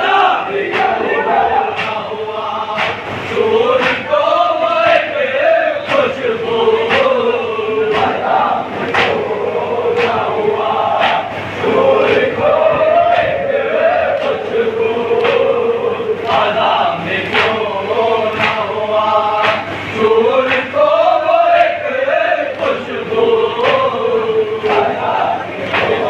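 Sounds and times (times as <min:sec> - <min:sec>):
men chanting a lament: 0:00.0 - 0:26.0.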